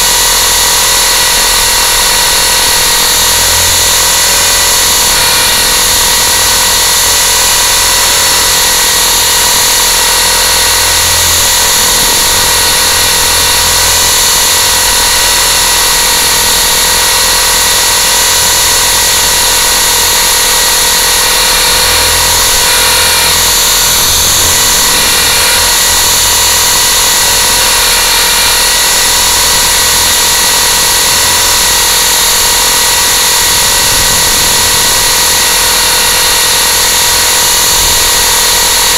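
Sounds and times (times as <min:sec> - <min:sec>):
high-pitched drone motor whine: 0:00.0 - 0:38.9.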